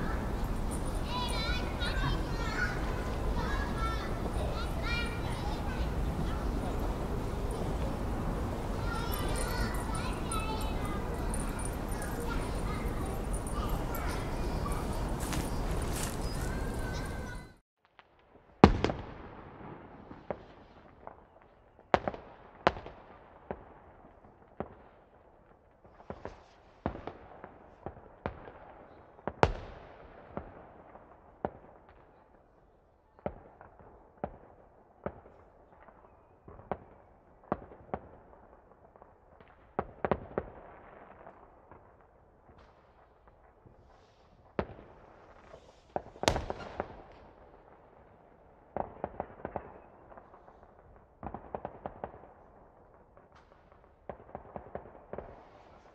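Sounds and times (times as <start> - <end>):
fireworks bangs and pops: 0.0 - 32.4, 33.1 - 55.9.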